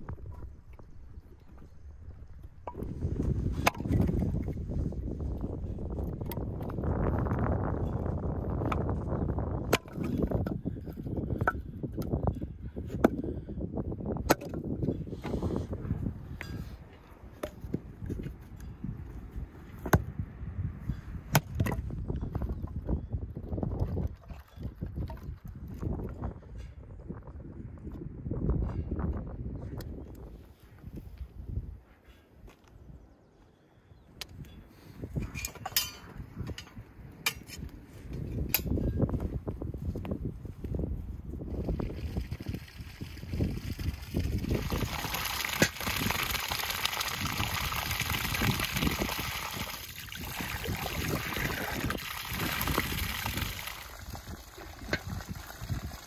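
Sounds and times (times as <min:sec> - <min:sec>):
axe splitting wood: 0:03.6 - 0:04.0, 0:14.2 - 0:14.6.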